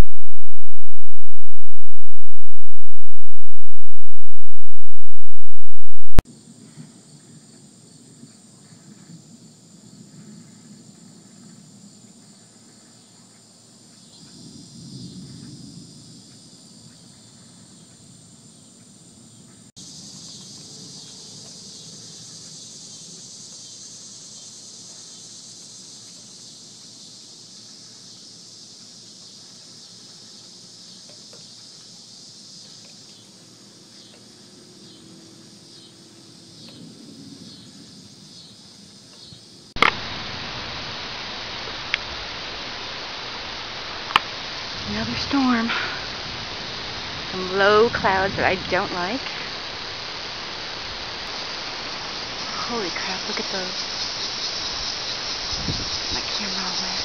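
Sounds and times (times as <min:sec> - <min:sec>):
loud steady hiss: 0:00.0 - 0:06.2, 0:11.8 - 0:57.0
low rumble: 0:00.0 - 0:06.2
insects trilling: 0:07.1 - 0:57.0.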